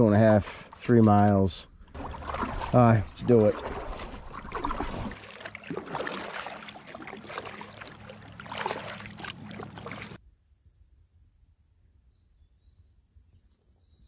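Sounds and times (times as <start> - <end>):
kayak paddle splashing in water: 1.8 - 10.2
water dripping: 1.8 - 10.2.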